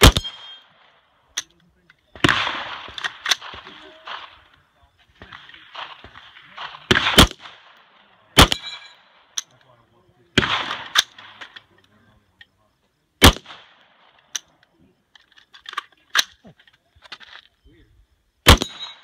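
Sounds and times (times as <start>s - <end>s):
rifle shots cracking: 0.0s - 1.0s, 2.2s - 4.6s, 5.2s - 9.5s, 10.4s - 11.6s, 13.2s - 14.5s, 18.4s - 19.0s.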